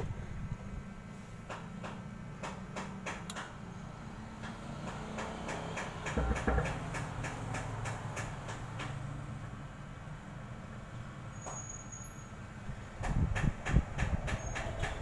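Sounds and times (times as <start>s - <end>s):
low thump: 6.2s - 6.8s.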